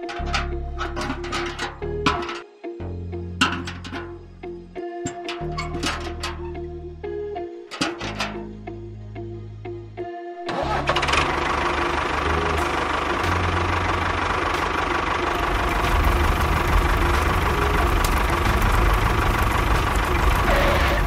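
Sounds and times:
tractor engine running: 0:00.0 - 0:02.4, 0:03.4 - 0:04.2, 0:05.0 - 0:06.5, 0:10.5 - 0:21.0.

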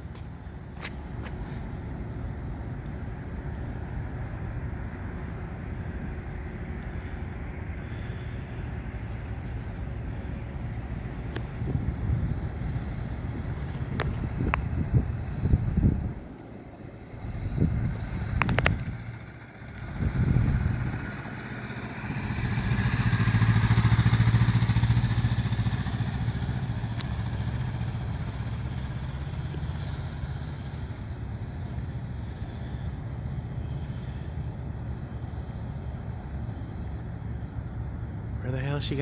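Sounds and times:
motorcycle engine riding by: 0:11.1 - 0:36.2
wind thumps on microphone: 0:13.7 - 0:16.2, 0:17.3 - 0:19.1.

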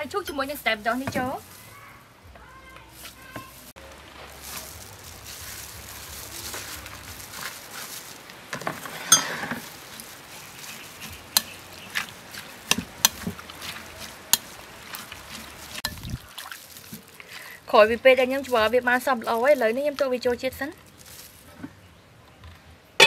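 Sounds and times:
vegetables tossed in sauce: 0:02.9 - 0:17.4
metal utensil clinking on glass: 0:08.6 - 0:09.6.

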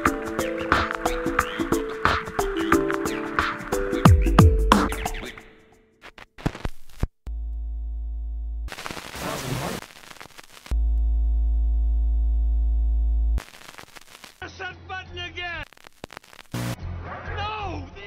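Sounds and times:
electronic buzzing tones: 0:09.8 - 0:14.4.

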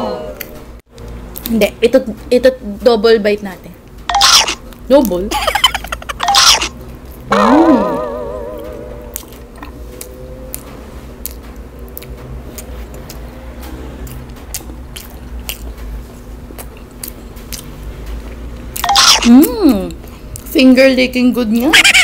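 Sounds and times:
close chewing with mouth clicks: 0:09.1 - 0:20.6.

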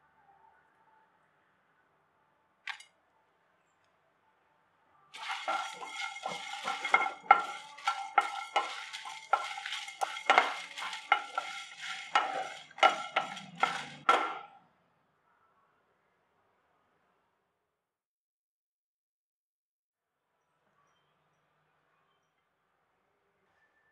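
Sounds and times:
seeds rattling in a stirred pan: 0:05.2 - 0:14.5.

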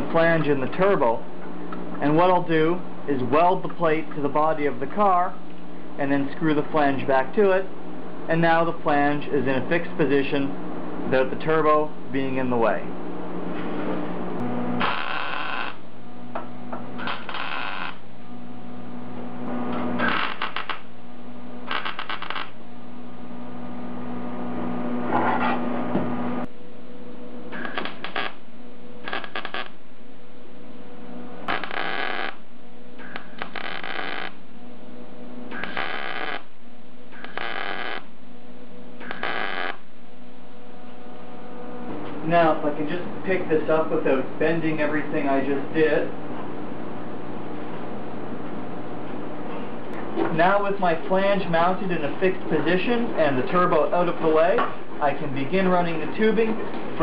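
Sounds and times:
steady electrical hum: 0:00.0 - 0:57.0
crackling tack welds: 0:14.4 - 0:15.8, 0:17.0 - 0:18.1, 0:19.6 - 0:20.9, 0:21.6 - 0:22.6, 0:27.5 - 0:29.8, 0:31.5 - 0:34.4, 0:35.5 - 0:36.5, 0:37.1 - 0:38.2, 0:39.0 - 0:39.9.

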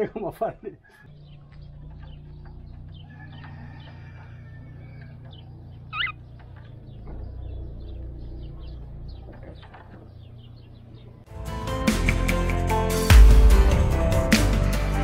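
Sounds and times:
cockatiel call: 0:05.9 - 0:06.2.

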